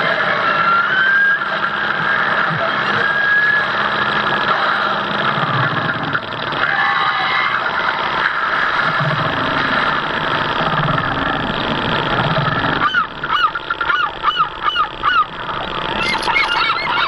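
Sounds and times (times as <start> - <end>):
low pulsing hum: 0.0 - 17.0
geese honking: 12.8 - 17.0.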